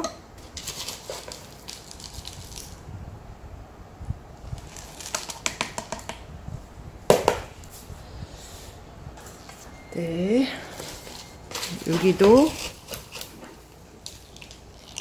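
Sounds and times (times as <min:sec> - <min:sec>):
potting mix pattering and crackling: 0:00.4 - 0:02.9, 0:10.7 - 0:15.0.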